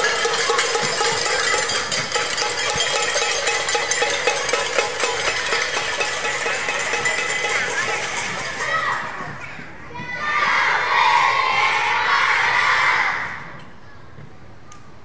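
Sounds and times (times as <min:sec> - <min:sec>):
metallic percussion clatter: 0:00.0 - 0:09.3.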